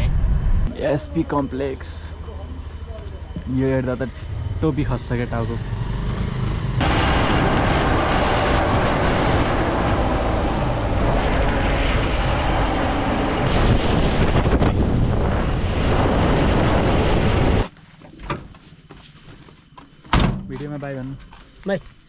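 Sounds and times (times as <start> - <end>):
vehicle road and engine noise: 2.3 - 13.5
wind on microphone: 6.8 - 17.7.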